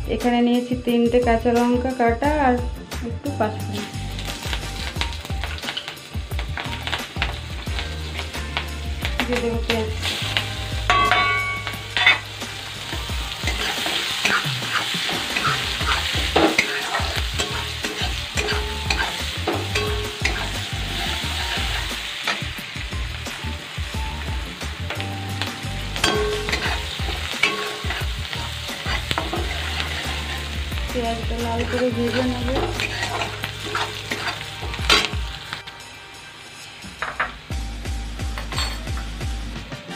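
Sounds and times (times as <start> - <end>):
onions sizzling in hot oil: 3.2 - 39.9
spatula scraping a metal pan: 11.0 - 12.2, 12.9 - 22.4, 26.0 - 30.6, 31.4 - 35.2.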